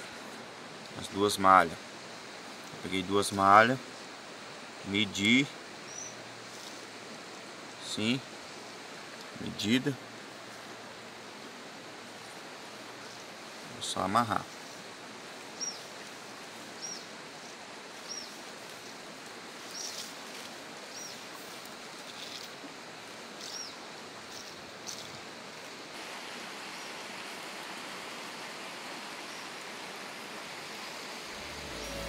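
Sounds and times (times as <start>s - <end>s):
river water flowing: 0.0s - 32.0s
small bird chirping: 5.9s - 6.2s, 18.0s - 18.4s, 19.7s - 20.1s, 23.4s - 23.8s.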